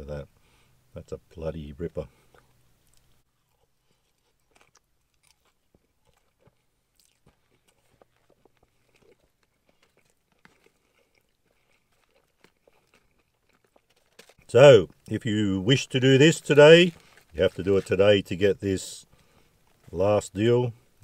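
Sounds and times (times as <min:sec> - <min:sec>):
person chewing crunchy food: 0:02.2 - 0:15.1, 0:16.9 - 0:17.9.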